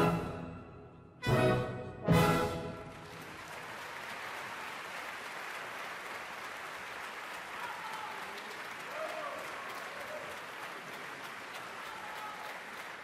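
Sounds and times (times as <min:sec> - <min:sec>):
audience applauding: 0:02.7 - 0:13.0.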